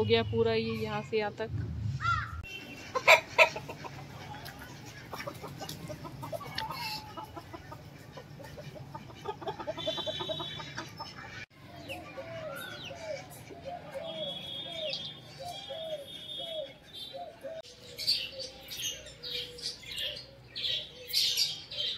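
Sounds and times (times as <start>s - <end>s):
chickens clucking: 2.6s - 14.2s.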